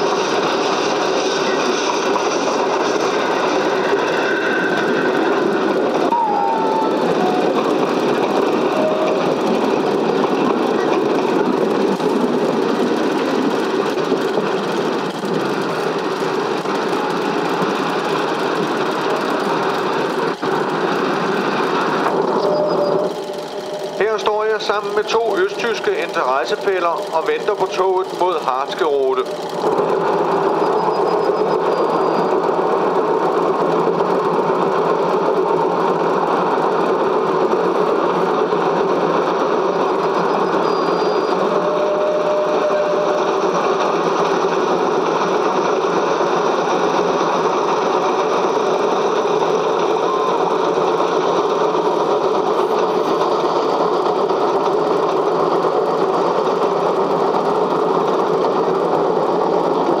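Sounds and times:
film projector whirring clatter: 23.1 - 30.9.

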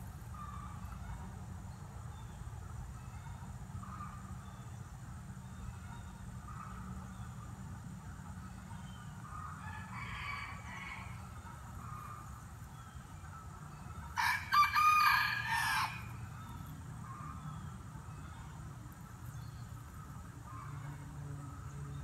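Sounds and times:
rooster crowing: 9.4 - 12.0, 14.2 - 16.3.

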